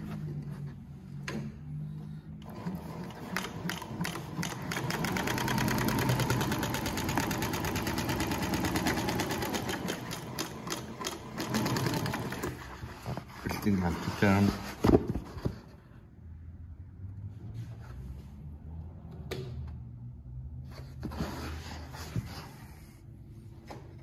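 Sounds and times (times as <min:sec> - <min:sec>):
industrial sewing machine stitching: 0:02.4 - 0:12.8.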